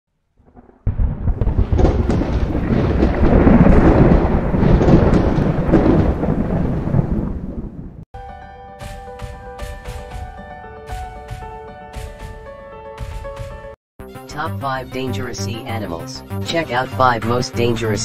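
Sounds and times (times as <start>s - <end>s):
thunder rumble: 0.4s - 8.0s.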